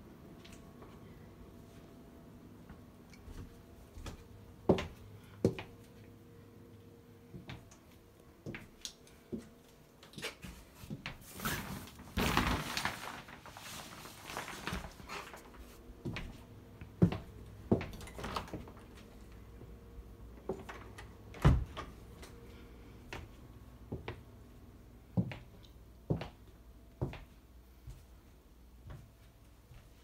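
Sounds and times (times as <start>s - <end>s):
footsteps on wooden floors: 2.6s - 6.0s, 15.0s - 19.0s, 23.1s - 24.2s, 25.2s - 26.4s, 27.0s - 28.2s
rustling: 10.4s - 15.9s.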